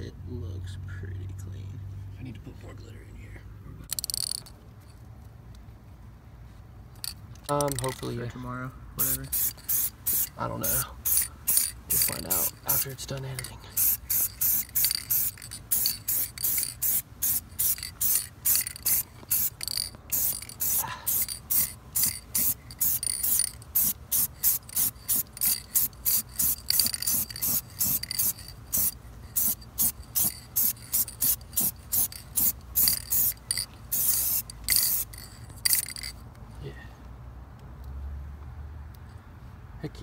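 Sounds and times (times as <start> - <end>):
spray can hissing bursts: 9.0 - 36.1.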